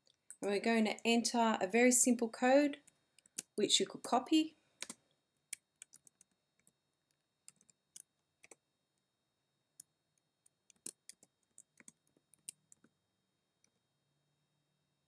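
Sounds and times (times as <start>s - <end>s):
computer keyboard keystrokes: 4.8s - 6.7s, 10.7s - 12.9s.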